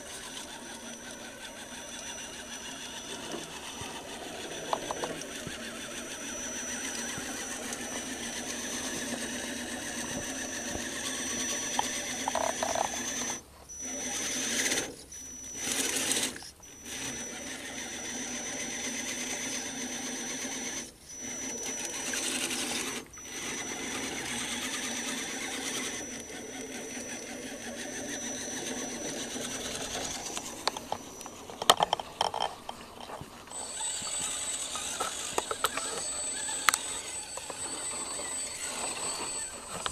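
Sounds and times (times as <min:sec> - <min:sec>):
electric motor whining: 0:00.0 - 0:39.9
sharp clicks: 0:29.3 - 0:38.6.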